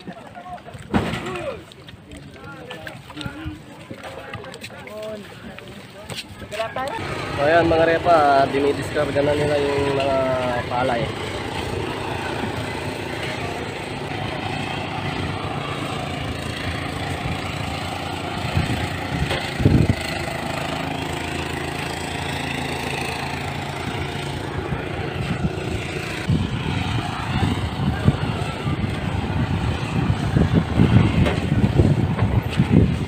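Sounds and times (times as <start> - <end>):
people talking: 0.0 - 11.2, 27.0 - 31.0
wind buffeting microphone: 6.3 - 33.0
engine idling: 6.8 - 29.6.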